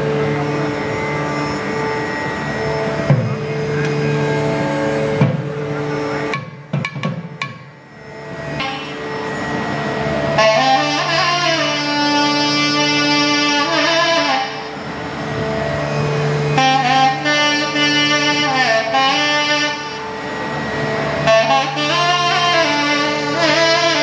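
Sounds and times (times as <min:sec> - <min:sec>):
nadhaswaram melody: 0:00.0 - 0:24.0
steady drone: 0:00.0 - 0:24.0
thavil drum strokes: 0:05.1 - 0:07.7.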